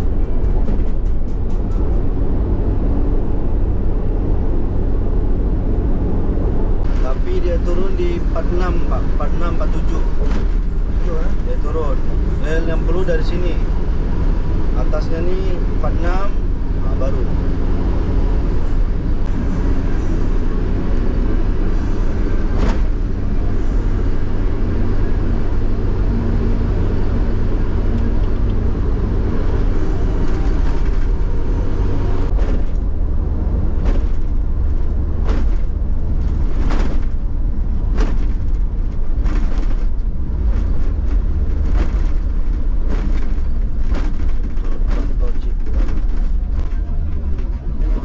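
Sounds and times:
car engine and tyre drone: 0:00.0 - 0:48.0
tyres thumping over road joints: 0:33.6 - 0:47.9.

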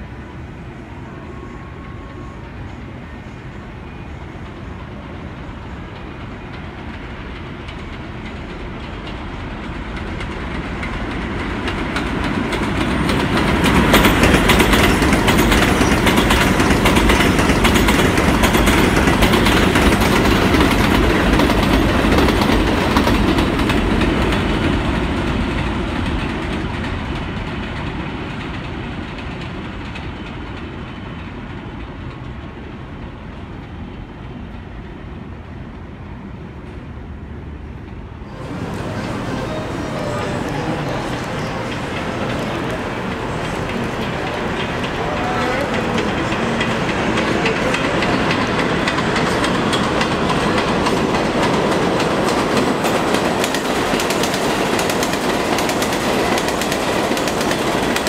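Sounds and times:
train wheels clattering over rails: 0:06.4 - 0:31.0, 0:38.3 - 0:58.0.

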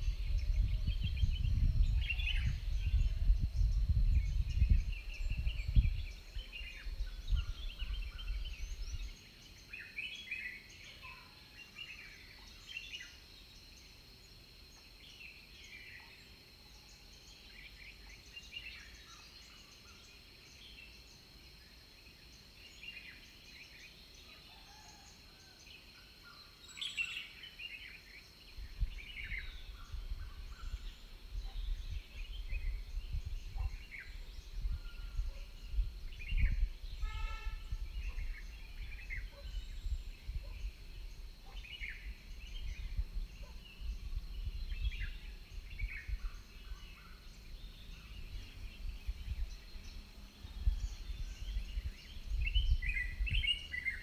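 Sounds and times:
birds chirping and whistling: 0:00.0 - 0:13.0, 0:28.5 - 0:54.0.

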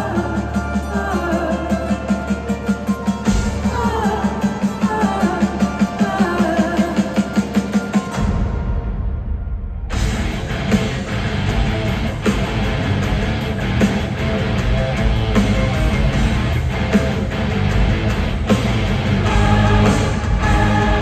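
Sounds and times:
heavy drums: 0:00.0 - 0:21.0
keyboards: 0:00.0 - 0:21.0
distorted electric guitars: 0:09.8 - 0:21.0.

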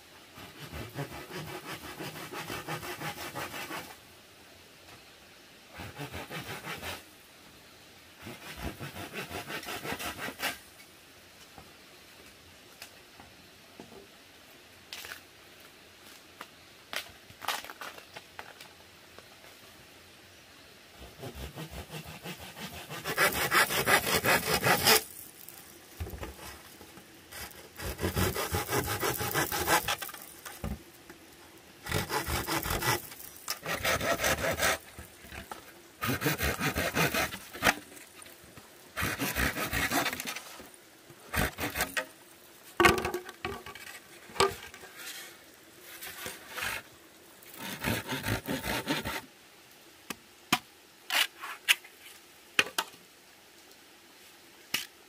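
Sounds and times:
hand saw cutting bamboo: 0:00.4 - 0:03.9, 0:05.8 - 0:07.0, 0:08.2 - 0:10.6, 0:21.0 - 0:25.1, 0:27.3 - 0:30.8, 0:31.8 - 0:37.8, 0:39.0 - 0:40.5, 0:41.3 - 0:42.1, 0:47.6 - 0:49.3
bamboo knocks: 0:42.8 - 0:43.8.

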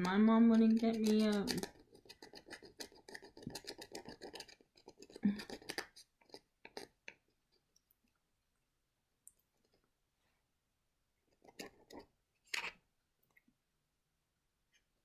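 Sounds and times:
scratching plastic card: 0:00.0 - 0:07.2.

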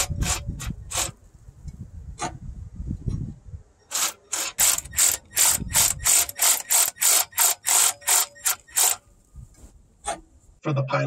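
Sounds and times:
ratchet wrench clicking: 0:03.9 - 0:09.0.

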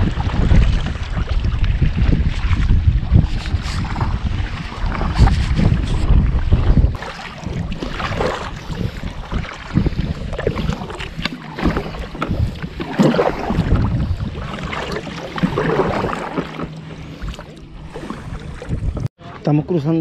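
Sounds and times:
wind rumbling on microphone: 0:00.0 - 0:19.4
kayak paddles splashing water: 0:00.0 - 0:19.5.

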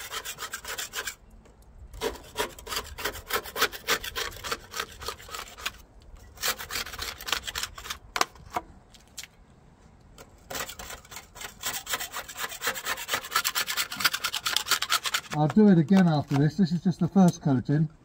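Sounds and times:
hand scraper scraping boat hull: 0:00.0 - 0:01.2, 0:02.0 - 0:08.3, 0:10.3 - 0:16.8.

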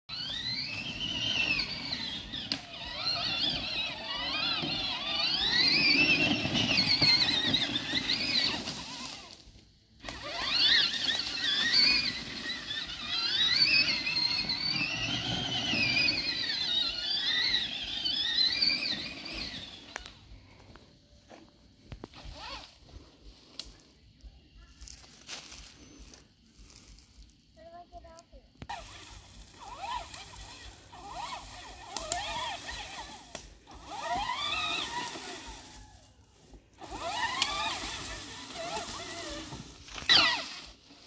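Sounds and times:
tyres rumbling on ground: 0:00.1 - 0:09.3, 0:10.1 - 0:20.2, 0:28.7 - 0:40.9
electric motor whining: 0:00.1 - 0:20.8, 0:28.7 - 0:40.9.

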